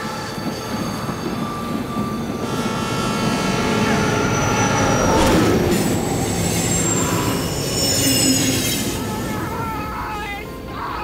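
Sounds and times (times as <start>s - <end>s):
electric train rushing past: 0.0s - 10.6s
wheels screeching on rails: 0.0s - 11.0s
falling whine: 3.4s - 9.6s.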